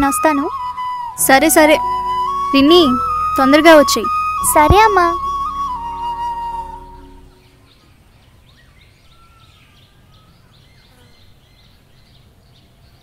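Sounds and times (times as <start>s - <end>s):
held flute note: 0.0s - 7.6s.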